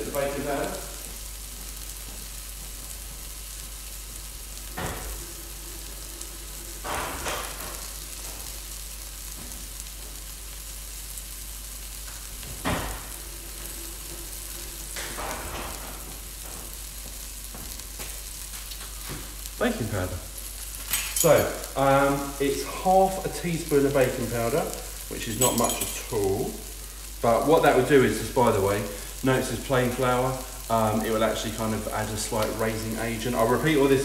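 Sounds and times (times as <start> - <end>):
onions sizzling in a pan: 0.0 - 34.0.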